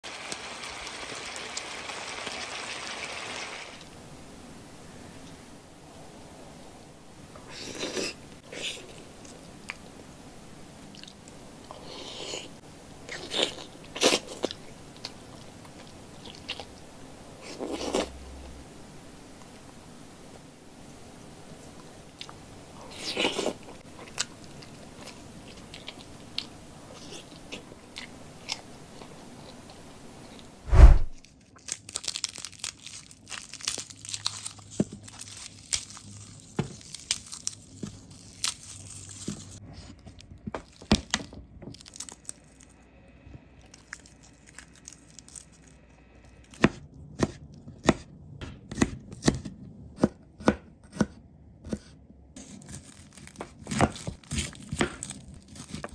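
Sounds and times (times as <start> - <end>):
heavy thump: 30.7 - 31.2
garlic skins crackling and tearing: 31.2 - 42.8, 43.7 - 45.8, 52.4 - 55.9
knife chopping on plastic board: 46.6 - 51.9.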